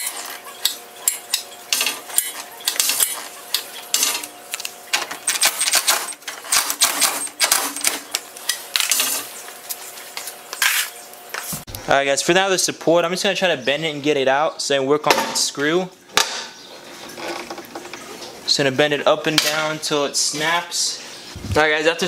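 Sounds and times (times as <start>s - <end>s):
hand tools clanking on metal: 0.0s - 9.3s.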